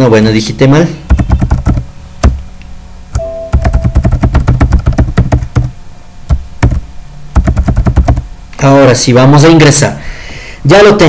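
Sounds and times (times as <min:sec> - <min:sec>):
fast typing on keyboard: 0:01.1 - 0:02.4, 0:03.5 - 0:06.8, 0:07.4 - 0:08.3
short steady tone: 0:03.2 - 0:04.0.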